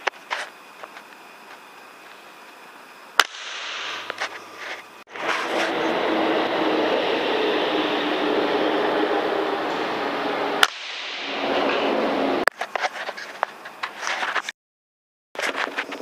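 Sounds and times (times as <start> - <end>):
air rifle shot cracks: 3.2 - 4.4, 10.6 - 11.7.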